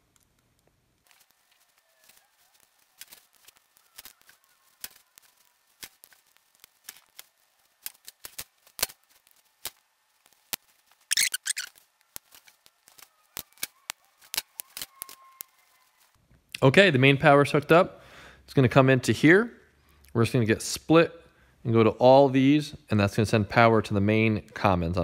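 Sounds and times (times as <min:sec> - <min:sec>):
wires clicking into connectors: 0:00.0 - 0:15.5
brief rustle: 0:01.0 - 0:16.2.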